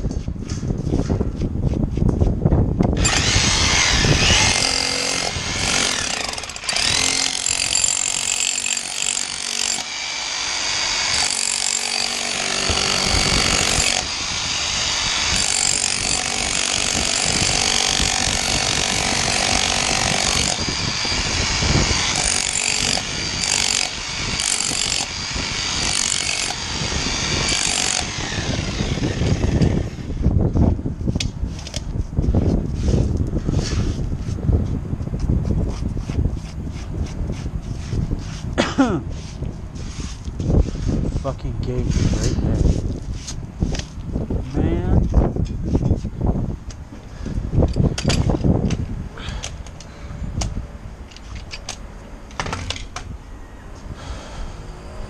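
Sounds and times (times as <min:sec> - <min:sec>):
rotary hammer chipping concrete: 0:03.0 - 0:29.8.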